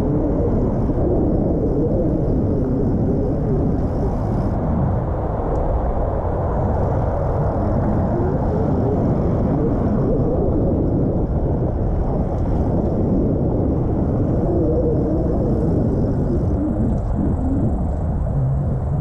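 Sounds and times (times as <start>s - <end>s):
wind rumble on microphone: 0.0s - 19.0s.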